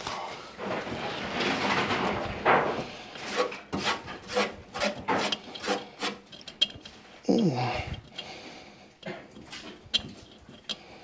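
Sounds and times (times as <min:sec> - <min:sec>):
rasping scraping strokes: 0:02.8 - 0:06.8.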